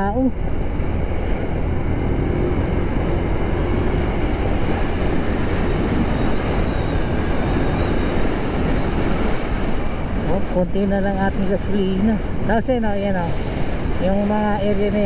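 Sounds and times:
wind on microphone: 0.0s - 15.0s
scooter engine running: 0.4s - 7.4s.

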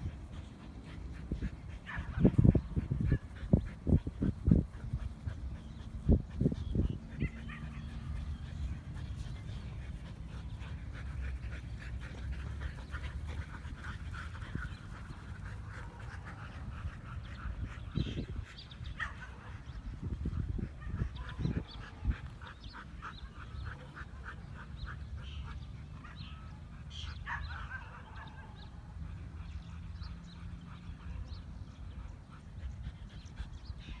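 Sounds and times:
dogs yipping and whining: 1.6s - 16.8s.

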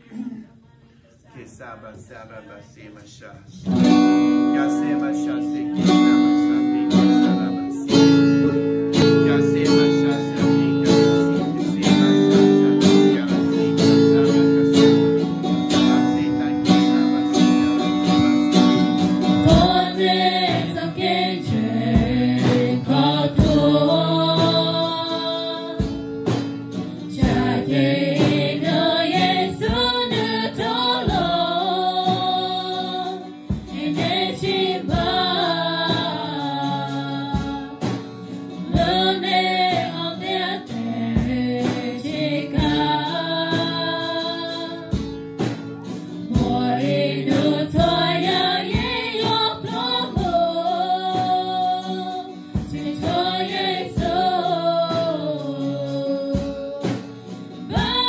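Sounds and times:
acoustic guitar playing: 1.3s - 58.0s
drum kit slow beat: 5.9s - 58.0s
group of singers: 17.4s - 58.0s.

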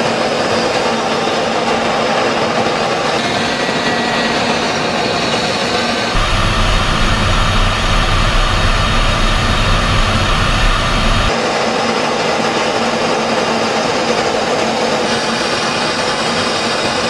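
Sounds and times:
jet aircraft rushing noise: 6.2s - 11.4s.

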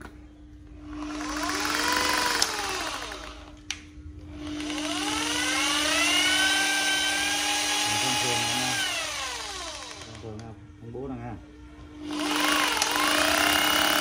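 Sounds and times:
rotary hammer drill motor whine: 0.8s - 3.6s, 4.3s - 10.4s, 11.9s - 14.0s
drill click: 1.0s - 3.8s, 12.1s - 14.0s.

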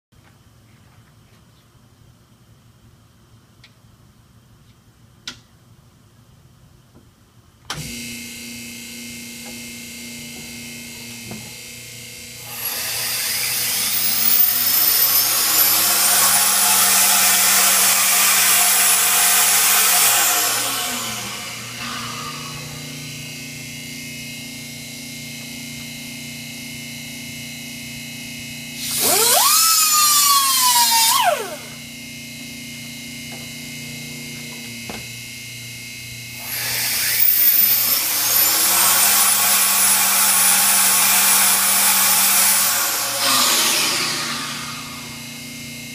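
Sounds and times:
small hand tool running: 12.4s - 22.7s, 28.8s - 31.8s, 36.4s - 45.4s
turbocharger rotor whine: 28.8s - 36.4s.

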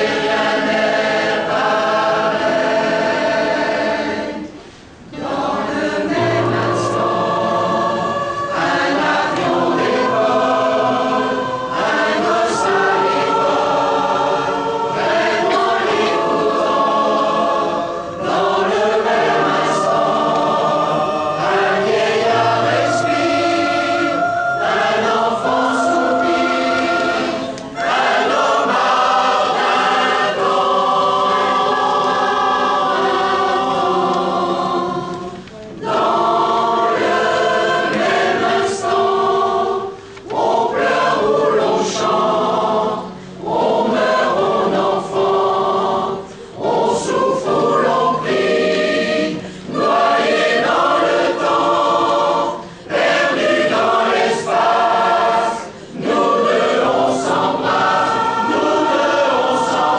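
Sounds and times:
mixed choir singing: 0.0s - 59.9s
singers breathing: 4.5s - 5.1s, 39.9s - 40.2s, 43.0s - 43.4s, 46.2s - 46.6s, 49.4s - 49.7s, 52.6s - 52.9s, 55.7s - 56.0s.

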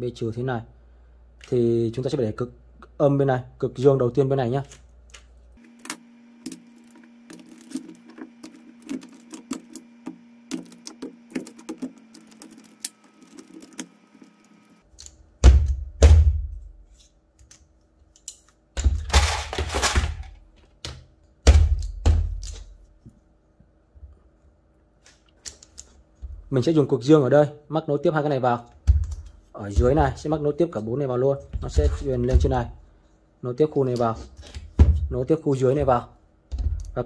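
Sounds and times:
heavy thunks and rattling knocks: 29.7s - 30.2s, 31.5s - 32.7s.

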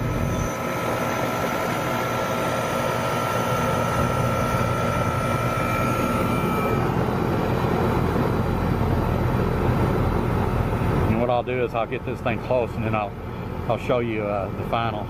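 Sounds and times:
air conditioner unit running: 0.0s - 15.0s.

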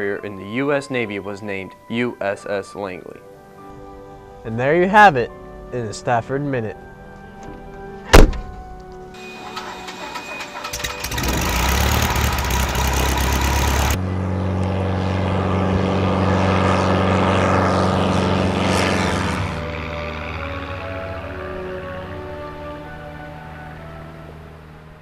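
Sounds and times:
propeller plane engine: 9.1s - 25.0s.

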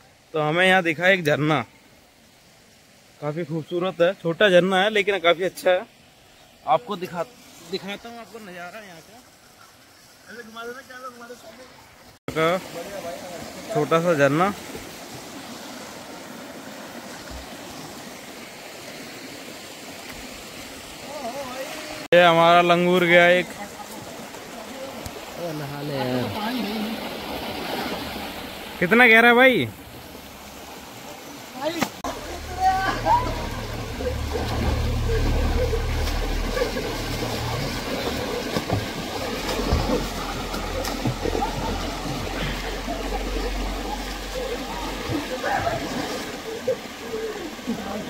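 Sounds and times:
waterfall and stream rushing: 0.0s - 48.0s
low rumble: 32.1s - 46.4s.

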